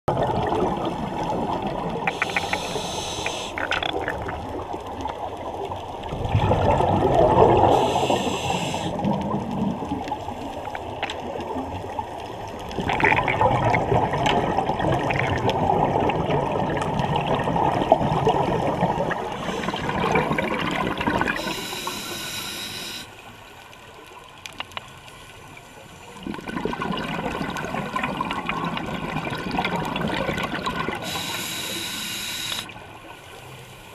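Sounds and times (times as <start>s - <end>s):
exhaust bubbles rushing: 0.1s - 2.1s, 6.1s - 8.2s, 12.8s - 21.4s, 26.2s - 31.0s
regulator inhalation hiss: 2.1s - 3.7s, 7.7s - 9.0s, 21.4s - 23.2s, 31.0s - 32.7s.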